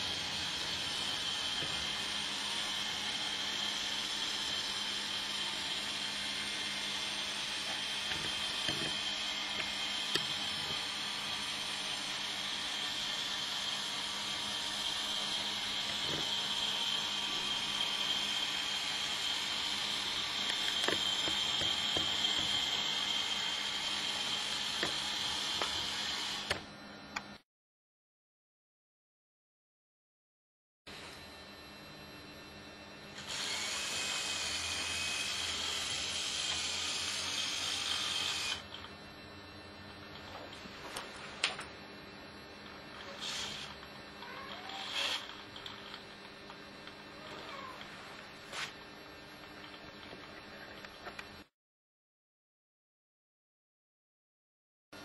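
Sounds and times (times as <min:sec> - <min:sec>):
robot drive motors whirring: 0:00.0 - 0:26.6, 0:33.2 - 0:39.0, 0:42.6 - 0:48.8.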